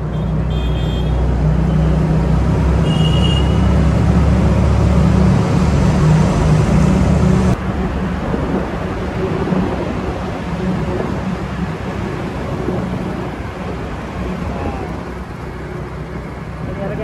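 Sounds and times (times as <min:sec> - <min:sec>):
scooter road noise rumbling: 0:00.0 - 0:17.0
wind buffeting microphone: 0:03.6 - 0:17.0.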